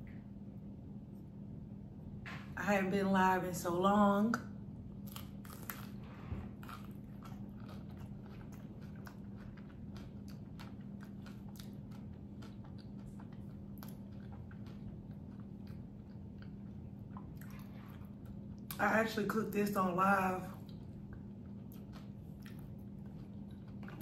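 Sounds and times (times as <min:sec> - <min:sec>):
faint low hum: 0:00.0 - 0:24.0
crunchy bite: 0:05.0 - 0:15.8
crunchy chewing: 0:05.0 - 0:18.8, 0:20.6 - 0:24.0.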